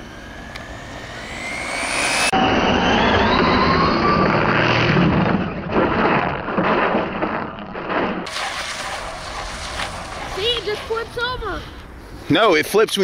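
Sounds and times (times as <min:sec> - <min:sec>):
electric motor whining: 0:00.0 - 0:05.6.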